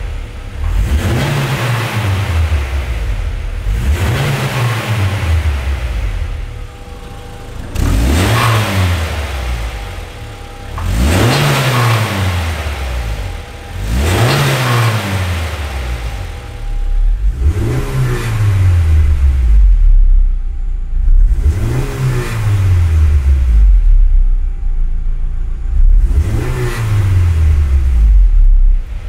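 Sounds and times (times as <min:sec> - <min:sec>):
car engine idling and revving: 0:00.0 - 0:29.0.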